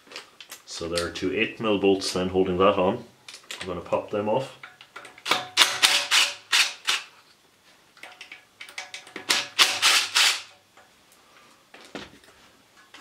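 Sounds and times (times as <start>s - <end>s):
impact driver rattling: 5.1s - 7.1s, 8.8s - 10.5s.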